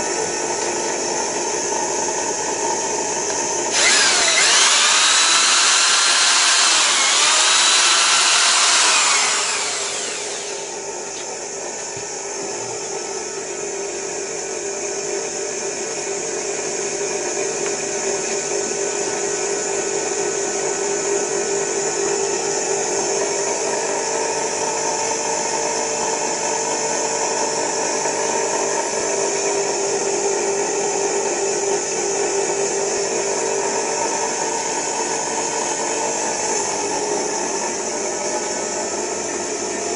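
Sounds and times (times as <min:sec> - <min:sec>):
motor-generator hum: 0:00.0 - 0:39.9
electric drill whining: 0:03.6 - 0:10.9.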